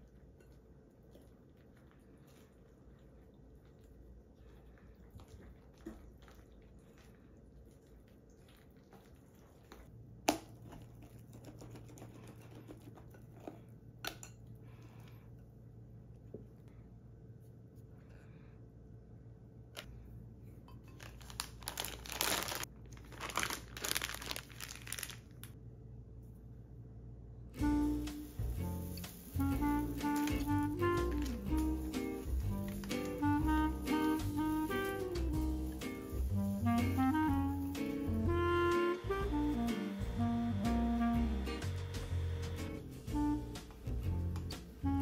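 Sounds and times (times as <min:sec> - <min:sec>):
rustling and crinkling: 0:20.8 - 0:25.6.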